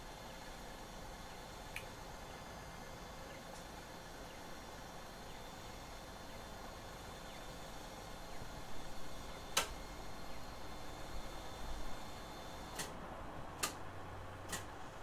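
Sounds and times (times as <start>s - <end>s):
sharp click: 9.5s - 9.8s, 13.6s - 13.8s, 14.5s - 14.7s.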